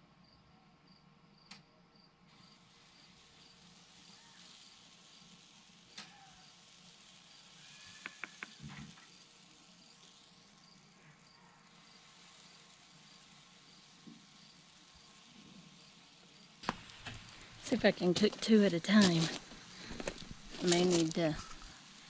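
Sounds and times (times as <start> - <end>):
small sharp clicks: 7.8 - 9.1.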